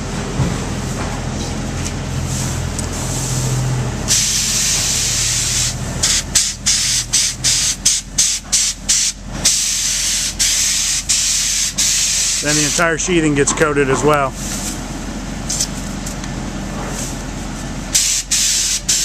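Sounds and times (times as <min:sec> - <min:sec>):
spray gun hissing: 0:08.5 - 0:13.0
low machine hum: 0:10.2 - 0:18.0.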